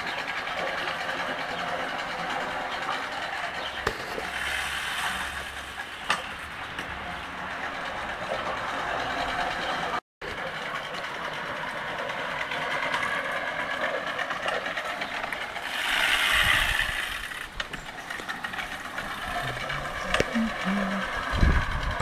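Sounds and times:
push reel mower whirring: 0:00.0 - 0:22.0.

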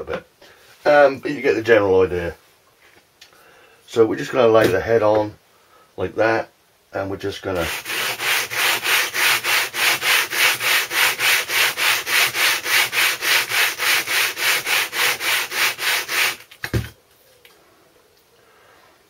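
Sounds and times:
metal scrubbing on sandpaper: 0:07.6 - 0:16.5.

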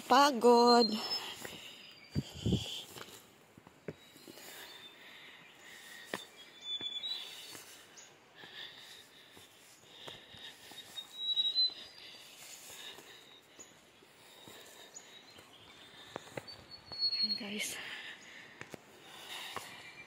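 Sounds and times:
footsteps on stone steps: 0:00.0 - 0:17.2, 0:17.8 - 0:20.0
birds calling: 0:00.0 - 0:20.0
thin high whistles: 0:10.8 - 0:12.6, 0:16.4 - 0:17.7.

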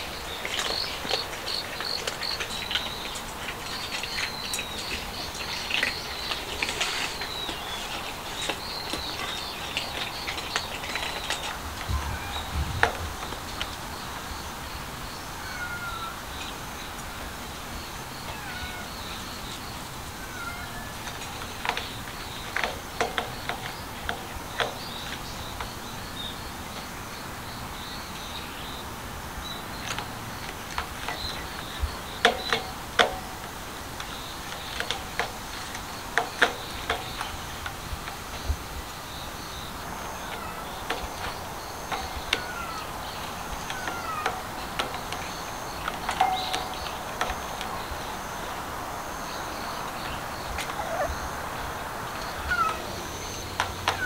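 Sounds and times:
kitten meowing: 0:20.2 - 0:20.9.

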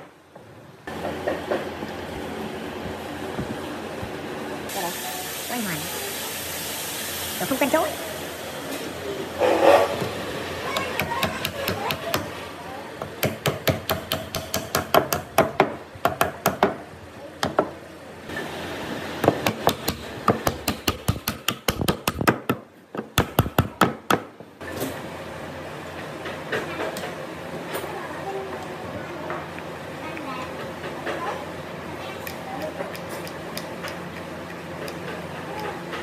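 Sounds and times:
mallet tapping wood: 0:10.7 - 0:12.3, 0:13.0 - 0:16.8, 0:19.2 - 0:24.3.

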